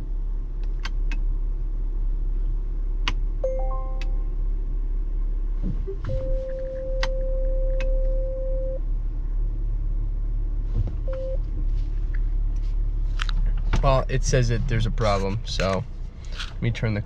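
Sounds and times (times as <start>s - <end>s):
low cabin rumble: 0.0s - 17.0s
parking brake switch clicks: 0.6s - 1.3s, 6.6s - 8.1s
long warning beep: 3.4s - 4.3s, 6.1s - 8.8s
short beep: 3.4s - 4.3s, 6.1s - 8.8s.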